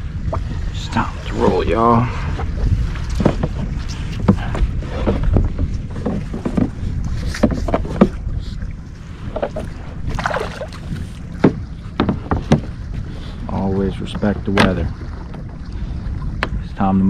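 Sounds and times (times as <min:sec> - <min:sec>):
wind rumble on microphone: 0:00.0 - 0:17.0
knocks against kayak hull: 0:03.1 - 0:08.2, 0:11.4 - 0:12.8, 0:14.2 - 0:15.6
water splashing: 0:06.0 - 0:16.7.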